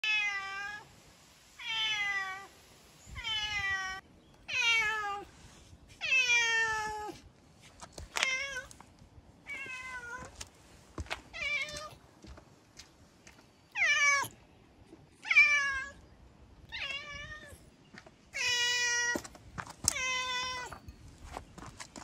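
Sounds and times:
cat meowing: 9.5s - 10.3s.

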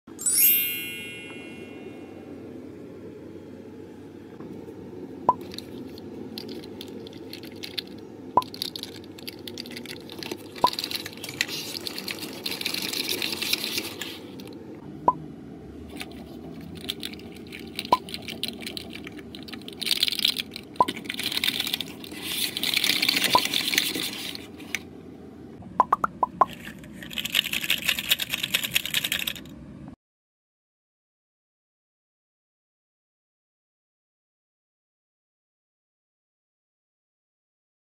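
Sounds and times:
plastic fidget toy clicking: 25.8s - 29.5s.

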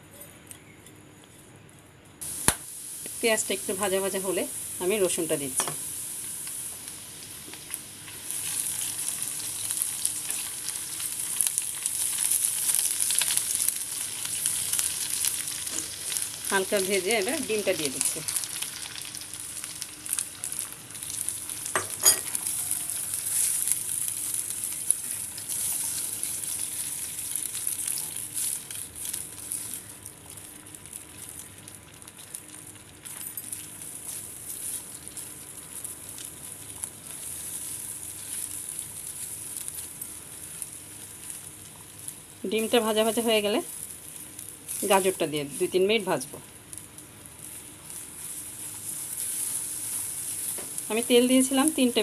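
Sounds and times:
eggs sizzling in hot oil: 2.2s - 52.0s
spatula stirring in pan: 22.0s - 29.7s, 47.9s - 50.8s.

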